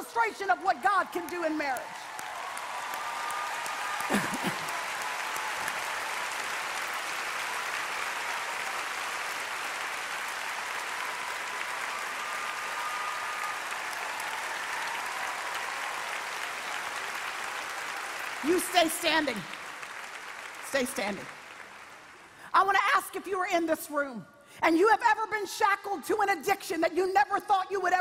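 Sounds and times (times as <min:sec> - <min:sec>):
audience applauding: 0:00.0 - 0:22.6.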